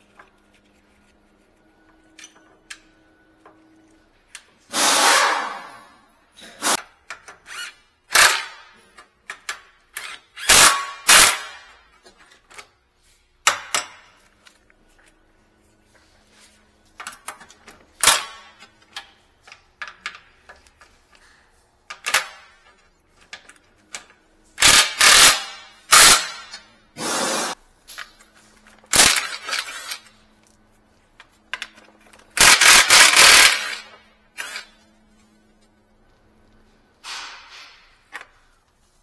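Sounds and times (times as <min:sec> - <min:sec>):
impact wrench rattling: 0:24.6 - 0:27.5, 0:28.9 - 0:30.0, 0:32.3 - 0:34.7.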